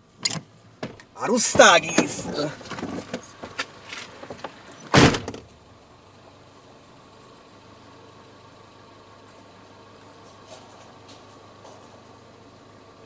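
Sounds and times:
car engine idling quietly: 0:00.0 - 0:13.0
car door slamming: 0:00.8 - 0:05.5.

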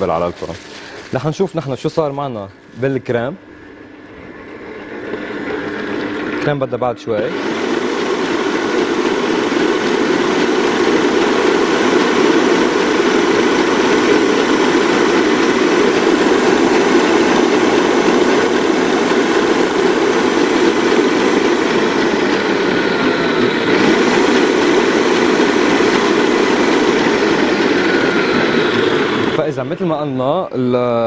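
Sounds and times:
stand mixer whipping cream: 0:00.0 - 0:31.0.

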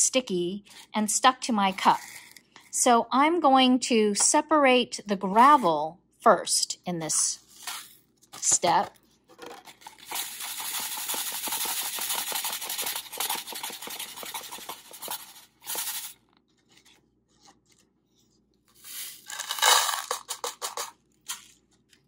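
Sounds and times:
gravel clattering into plastic cup: 0:18.8 - 0:21.5.

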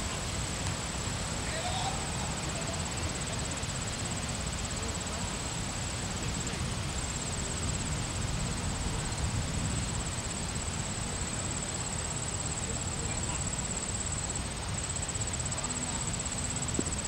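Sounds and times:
high pulsing insect trill: 0:00.0 - 0:17.0
wind rumble on microphone: 0:06.4 - 0:11.3.

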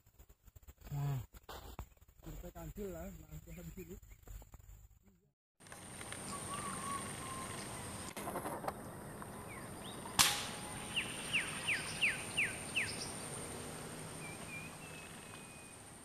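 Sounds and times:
bird whistling descending notes: 0:06.2 - 0:08.2, 0:09.4 - 0:13.1
air rifle shot: 0:10.2 - 0:10.7.

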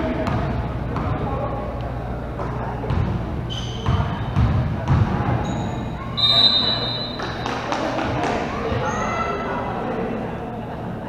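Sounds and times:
sneakers squeaking on hardwood: 0:03.4 - 0:07.6
basketball dribbling on gym floor: 0:03.8 - 0:05.4.

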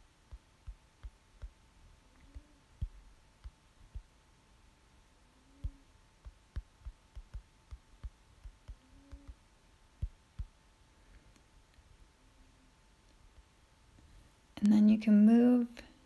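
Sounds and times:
fingertips tapping touchscreen: 0:00.0 - 0:01.6, 0:05.6 - 0:09.4, 0:10.0 - 0:10.6
faint steady hum: 0:00.0 - 0:16.0.

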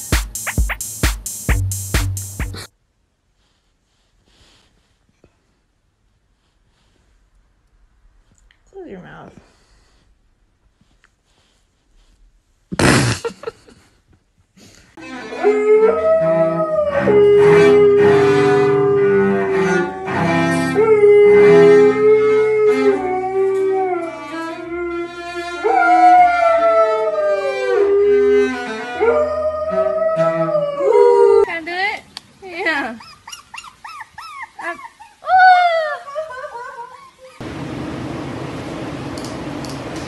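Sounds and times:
cello playing long bowed notes: 0:15.0 - 0:31.0
dog howling: 0:15.3 - 0:31.5.

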